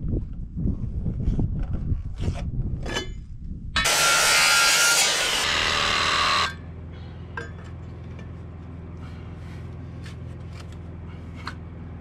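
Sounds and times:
power tool cutting off: 0:03.8 - 0:06.6.

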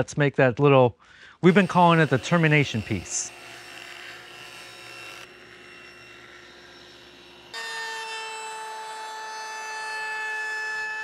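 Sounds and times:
sanding drum motor whine: 0:01.4 - 0:03.6.

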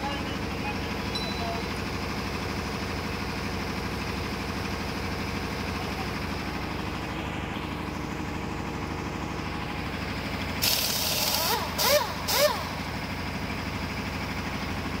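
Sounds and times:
pneumatic impact wrench rattling: 0:10.6 - 0:13.1.

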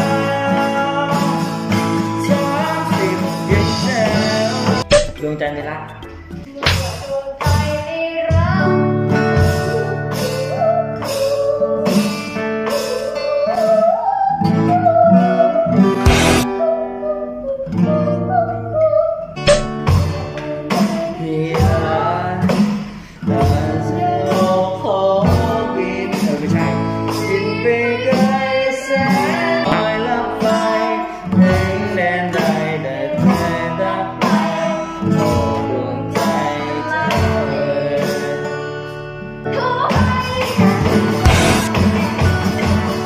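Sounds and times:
person singing: 0:00.0 - 0:38.6, 0:39.5 - 0:42.1
guitar: 0:00.0 - 0:43.0
electronic drums: 0:04.6 - 0:07.0, 0:16.0 - 0:16.5, 0:19.5 - 0:20.0, 0:41.3 - 0:41.9.

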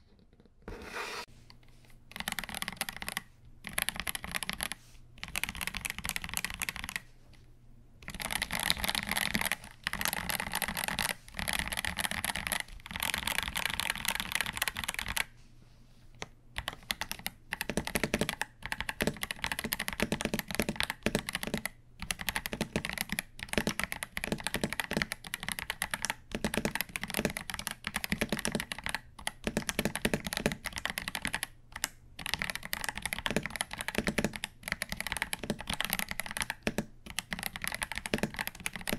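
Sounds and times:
typing on mechanical keyboard: 0:02.1 - 0:07.1, 0:08.0 - 0:15.3, 0:16.6 - 0:38.9.

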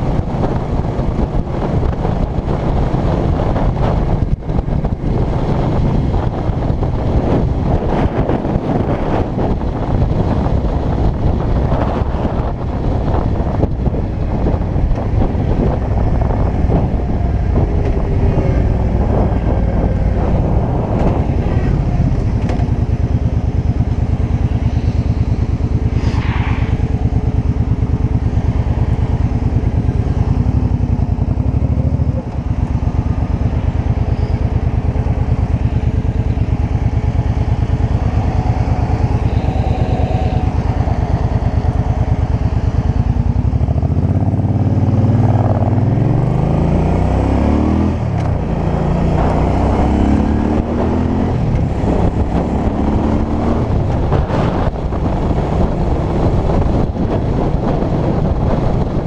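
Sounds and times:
motorcycle engine: 0:00.0 - 0:59.0
wind noise on microphone: 0:00.0 - 0:59.0.

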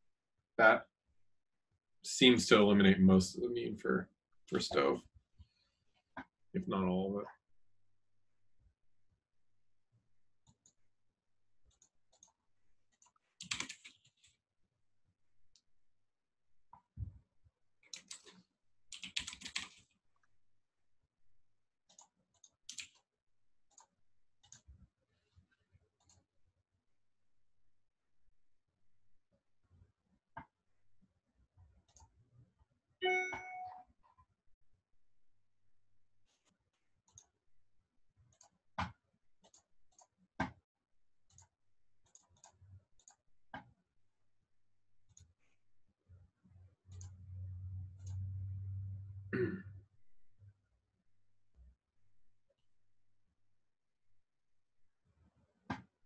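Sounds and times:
computer keyboard typing: 0:11.7 - 0:14.4, 0:17.8 - 0:20.0, 0:21.9 - 0:23.1
computer clicks and taps: 0:33.0 - 0:33.9.

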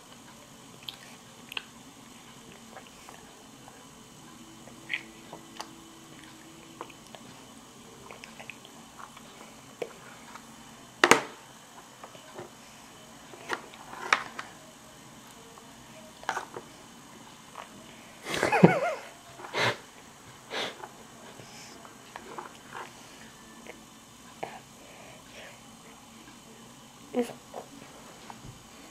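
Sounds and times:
toddler chewing and smacking: 0:00.8 - 0:01.8, 0:04.6 - 0:10.4.

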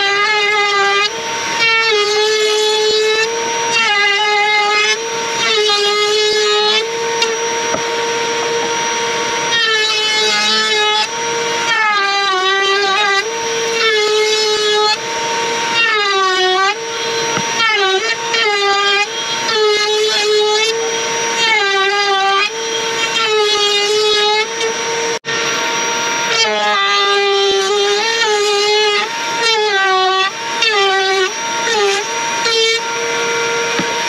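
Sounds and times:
router motor whining: 0:00.0 - 0:34.0.

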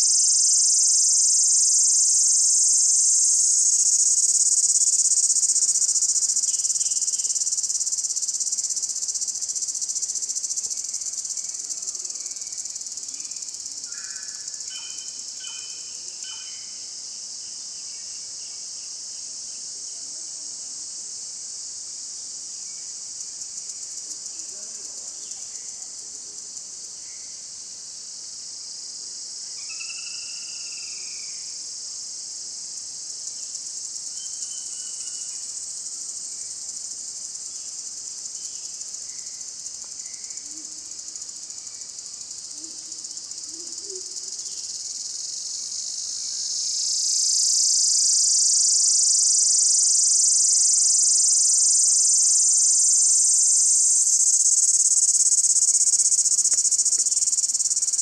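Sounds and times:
high-pitched insect chorus: 0:00.0 - 0:58.0.

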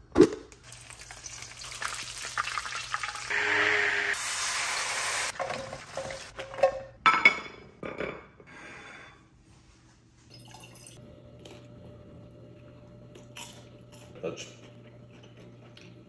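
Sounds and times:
immersion blender whirring: 0:03.3 - 0:04.4.

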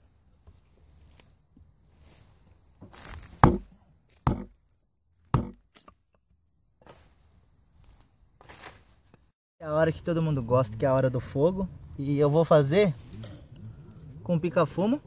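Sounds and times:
hatchet chopping wood: 0:03.4 - 0:04.6, 0:05.3 - 0:06.0.

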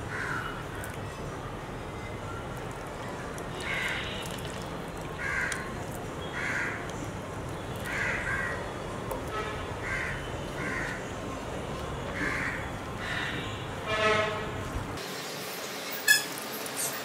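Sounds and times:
low background noise: 0:00.0 - 0:16.8
crow cawing: 0:00.1 - 0:00.5, 0:05.2 - 0:05.7, 0:06.3 - 0:06.8, 0:07.9 - 0:08.6, 0:09.8 - 0:11.0, 0:12.2 - 0:13.4.

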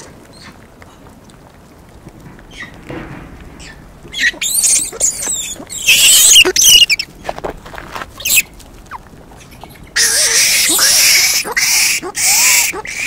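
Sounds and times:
monkeys squealing and screaming: 0:03.6 - 0:07.1, 0:08.2 - 0:08.4, 0:09.4 - 0:13.0.

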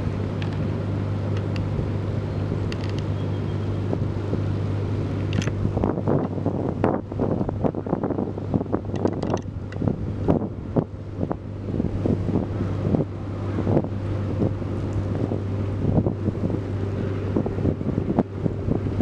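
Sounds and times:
steady low hum: 0:00.0 - 0:19.0
wind buffeting microphone: 0:00.0 - 0:19.0.

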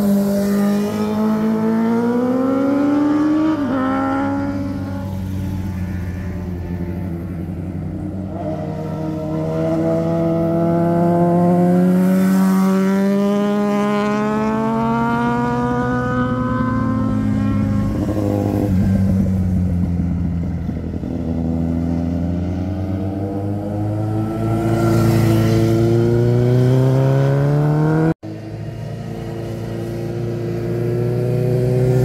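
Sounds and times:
motorcycle engines accelerating past: 0:00.0 - 0:32.0.

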